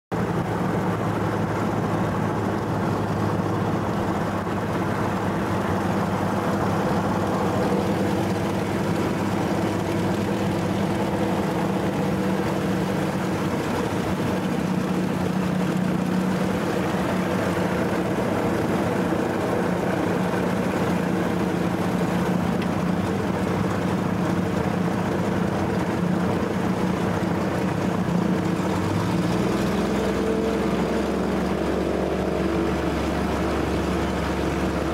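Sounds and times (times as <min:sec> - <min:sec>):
propeller plane engine running: 0:00.1 - 0:34.9.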